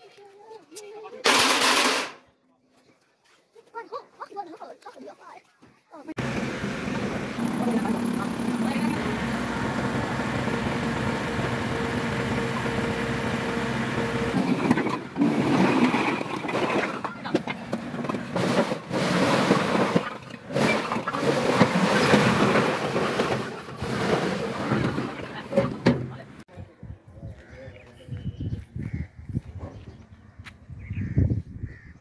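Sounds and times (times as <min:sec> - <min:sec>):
loud irregular noise: 0:06.2 - 0:15.3
tractor engine running: 0:06.2 - 0:18.4.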